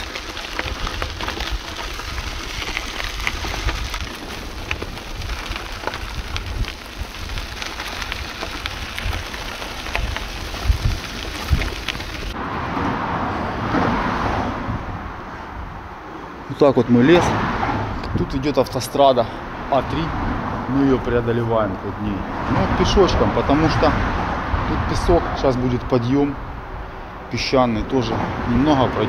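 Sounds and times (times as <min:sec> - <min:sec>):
wind buffeting microphone: 0:00.0 - 0:16.1
bicycle road noise: 0:00.0 - 0:29.0.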